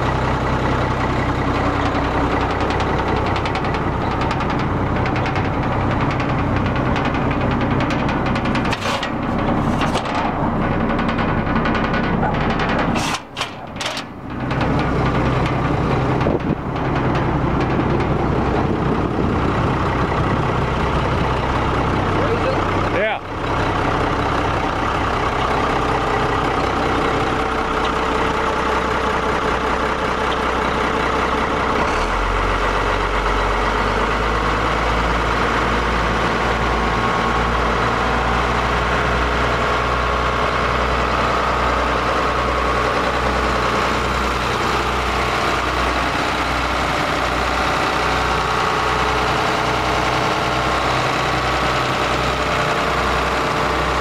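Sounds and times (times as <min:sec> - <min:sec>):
truck engine idling: 0:00.0 - 0:54.0.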